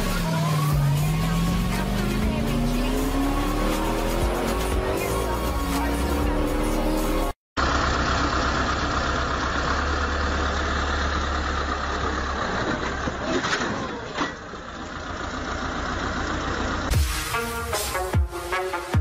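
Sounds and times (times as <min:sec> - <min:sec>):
music: 0:00.0 - 0:07.4, 0:16.9 - 0:19.0
heavy vehicle engine rumbling: 0:00.0 - 0:18.0.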